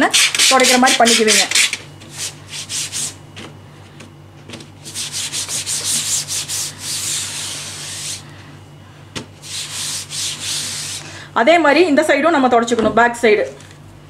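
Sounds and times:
cloth rubbing on mesh screen: 0:04.8 - 0:08.2, 0:09.4 - 0:11.0.

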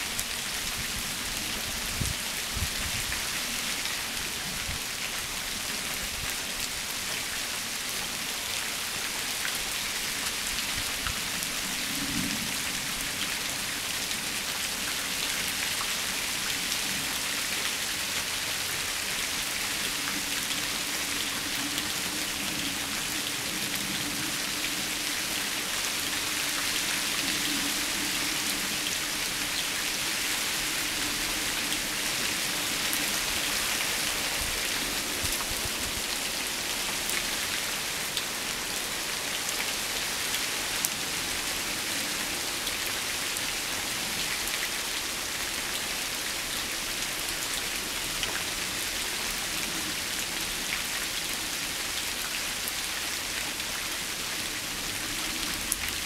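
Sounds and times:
rain falling on leaves: 0:00.0 - 0:56.0.

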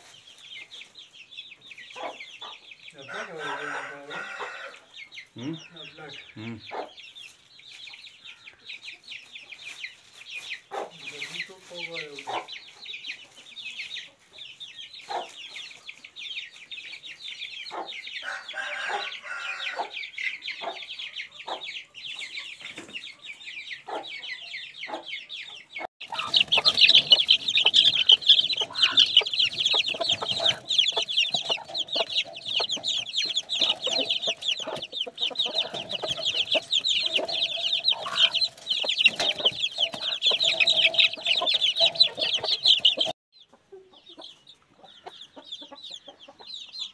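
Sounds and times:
chicks peeping: 0:00.0 - 0:46.9
hens clucking: 0:01.9 - 0:07.0, 0:10.6 - 0:13.4, 0:17.6 - 0:46.8.

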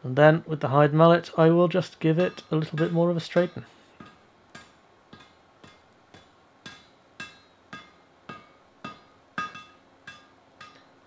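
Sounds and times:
mallet striking hot metal blade: 0:02.2 - 0:10.9.

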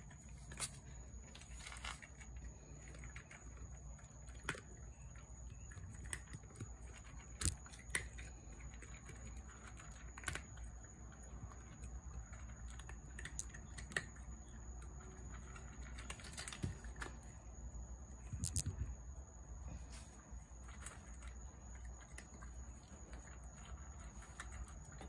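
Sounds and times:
cat crunching dry kibble: 0:00.0 - 0:18.8, 0:20.4 - 0:25.0.

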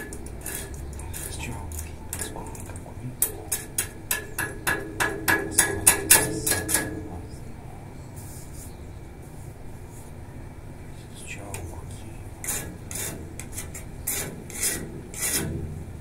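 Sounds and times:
tool tapping metal railing: 0:00.0 - 0:07.3.

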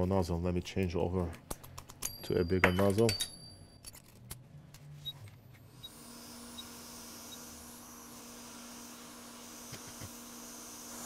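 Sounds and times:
hot air blower hiss: 0:06.0 - 0:11.0.

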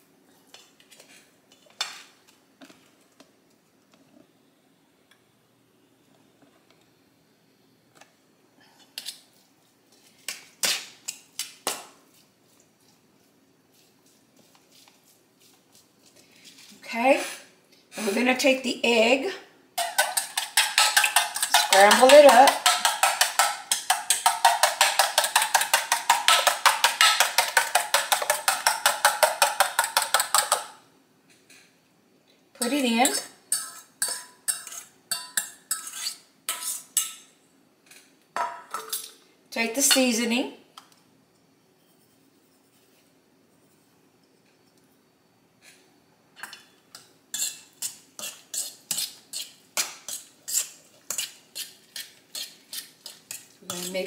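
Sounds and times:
fork clinking in a metal bowl: 0:19.8 - 0:30.6, 0:32.6 - 0:37.3, 0:46.4 - 0:54.0.

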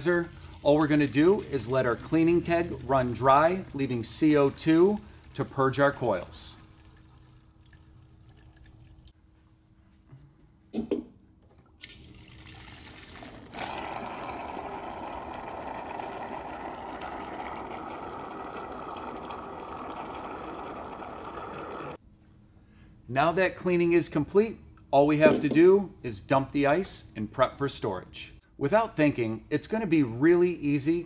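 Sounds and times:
foam and gas spurting from faucet: 0:11.8 - 0:22.0.

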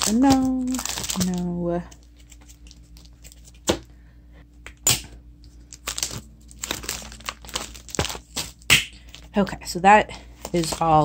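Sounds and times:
plastic sheets crinkling: 0:00.0 - 0:03.8, 0:05.5 - 0:09.4, 0:10.4 - 0:11.0.

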